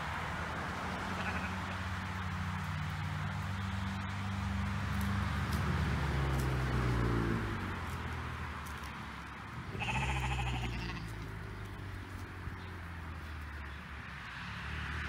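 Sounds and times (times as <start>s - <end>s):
vehicle engine drone: 0.0s - 15.0s
sheep bleating: 1.1s - 1.7s, 9.7s - 11.3s.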